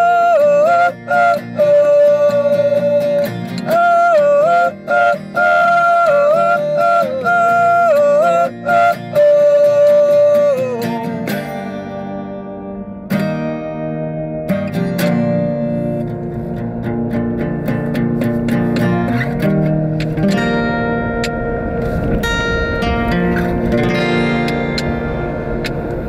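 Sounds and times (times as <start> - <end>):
men singing together: 0.0 - 11.0
acoustic guitars strumming: 0.0 - 26.0.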